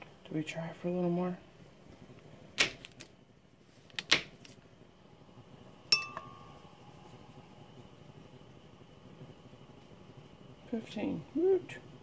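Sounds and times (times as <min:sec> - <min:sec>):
glass jar clinking: 0:05.9 - 0:06.6.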